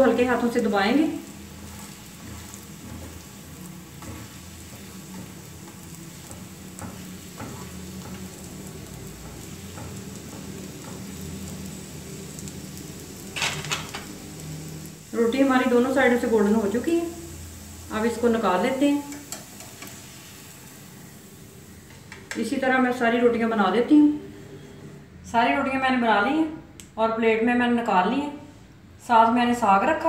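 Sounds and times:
flatbread sizzling in oil: 0:00.0 - 0:23.0.

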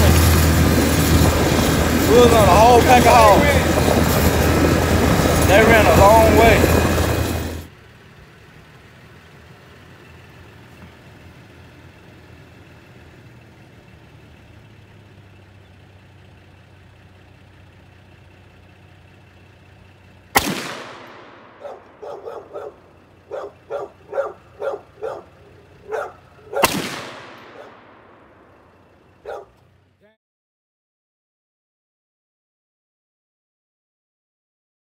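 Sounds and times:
rifle shots with echo: 0:20.4 - 0:22.0, 0:26.6 - 0:28.4
dog barking: 0:21.6 - 0:26.7, 0:27.5 - 0:27.7, 0:29.2 - 0:29.6.

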